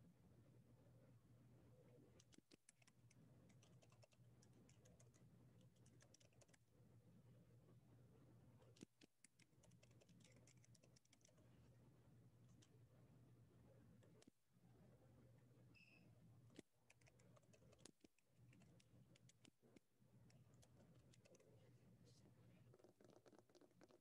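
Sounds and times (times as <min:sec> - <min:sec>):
low steady hum: 0:00.0 - 0:22.9
typing on computer keyboard: 0:02.2 - 0:06.6, 0:08.8 - 0:11.4.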